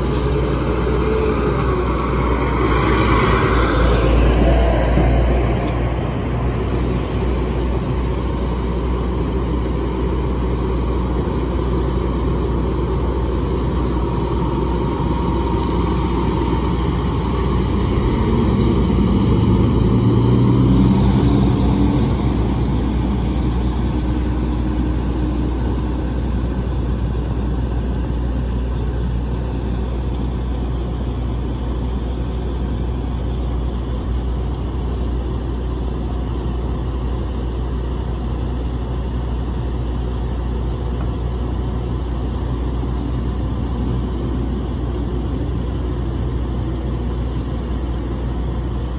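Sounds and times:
fire engine driving past: 0.0 - 48.9.

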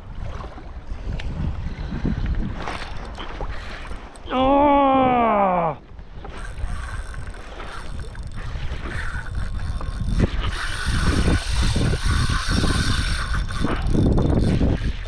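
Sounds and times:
wind rumble on microphone: 0.0 - 15.0
fishing reel whirring: 6.2 - 15.0.

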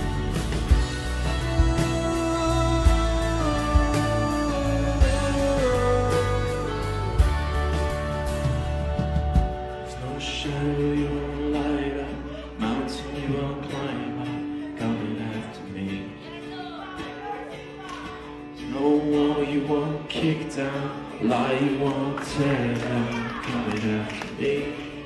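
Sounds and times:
band accompaniment: 0.0 - 11.8
strummed acoustic guitar: 0.0 - 25.0
man singing: 0.9 - 8.2, 9.7 - 25.0.

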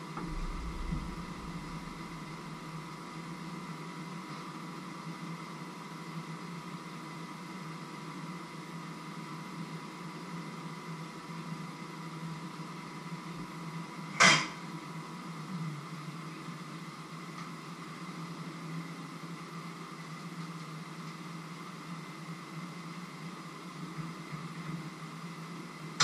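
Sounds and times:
mechanical hum with high whine: 0.0 - 26.0
sharp knock: 0.2 - 2.7.

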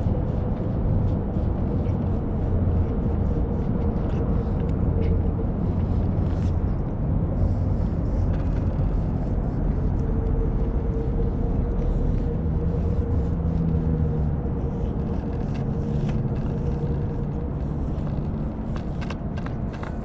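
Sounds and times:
low rumble with droning hum: 0.0 - 20.0
cat chewing and licking: 7.5 - 20.0.

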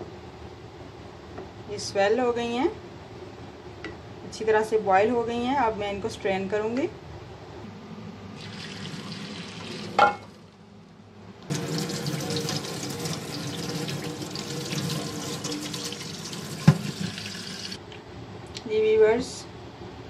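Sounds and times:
kitchen tap running: 8.4 - 10.2, 11.5 - 17.8
water pouring through strainer: 11.5 - 17.8.

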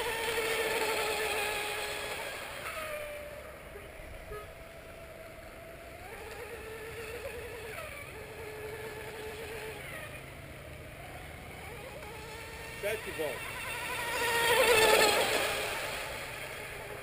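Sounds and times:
electric boat motor whining: 0.0 - 17.0.

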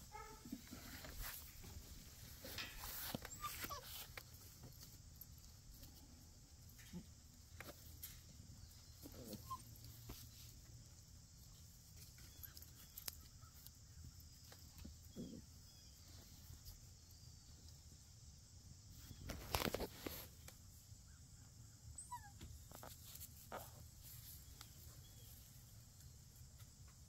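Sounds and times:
puppies rustling on grass: 0.2 - 5.9, 18.9 - 20.6, 22.4 - 26.4.

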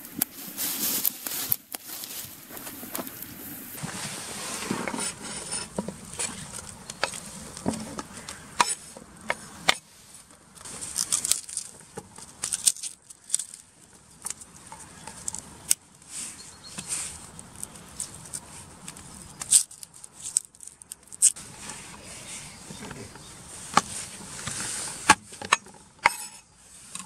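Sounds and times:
garlic cloves broken and peeled: 10.9 - 15.8, 17.2 - 21.4.

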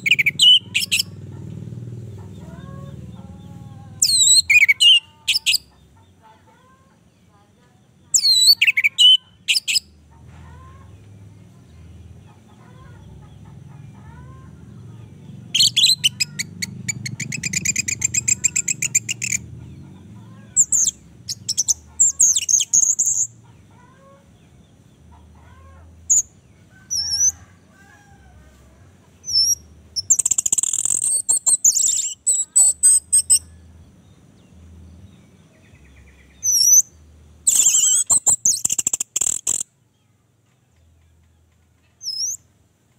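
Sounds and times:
bird singing whistles and chirps: 4.0 - 5.6, 8.2 - 9.8, 37.5 - 39.6
bird buzzy rattle: 37.5 - 39.6.

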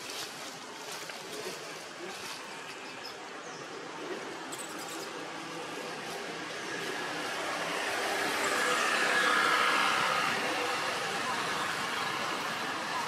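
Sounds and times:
vehicle passing by: 5.0 - 13.0.

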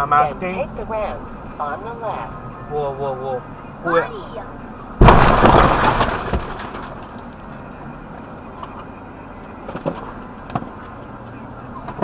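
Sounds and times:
low vehicle hum: 0.0 - 12.0
vehicle crash: 4.9 - 7.7.

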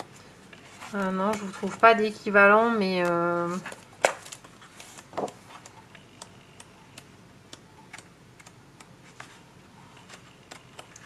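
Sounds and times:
paper pages rustling: 0.0 - 2.1, 2.9 - 5.8, 9.0 - 11.0.

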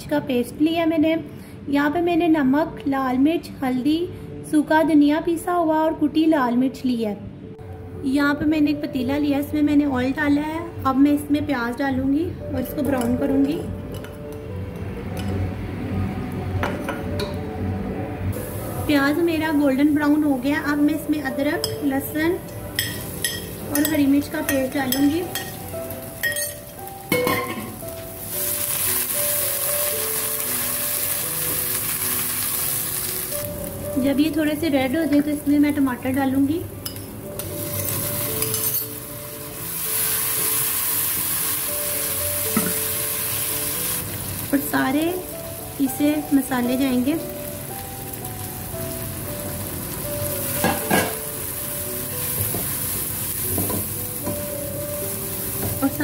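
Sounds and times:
soft background music: 0.0 - 56.0
paste sizzling in hot oil: 27.8 - 33.5, 37.5 - 46.6, 47.4 - 56.0.

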